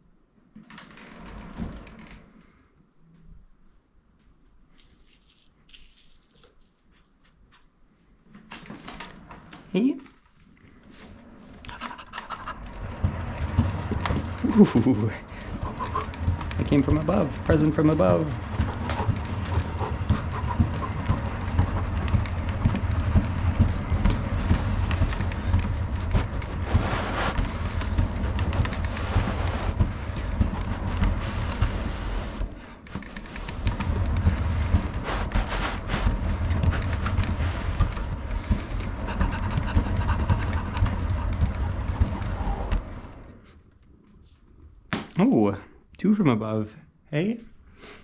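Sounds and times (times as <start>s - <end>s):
cat exercise wheel rumbling: 0.5s - 2.7s, 8.3s - 43.8s.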